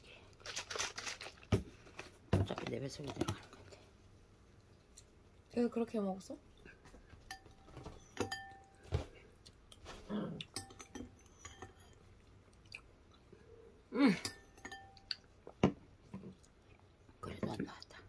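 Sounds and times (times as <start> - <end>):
spoon clinking on ceramic bowl: 7.3 - 8.8, 10.5 - 12.0, 14.2 - 15.2
chewing: 11.8 - 13.4.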